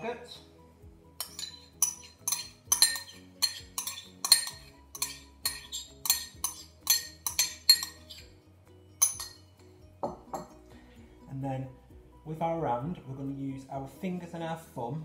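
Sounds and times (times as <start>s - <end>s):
spoon clinking on metal bowl: 1.2s - 8.3s, 9.0s - 10.6s.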